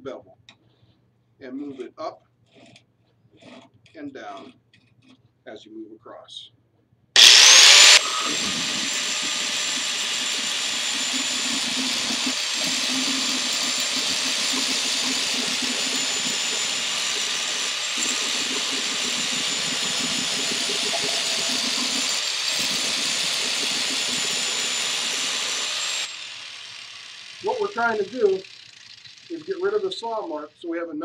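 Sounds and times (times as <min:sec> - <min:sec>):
angle grinder grinding steel: 0:07.2 - 0:30.3.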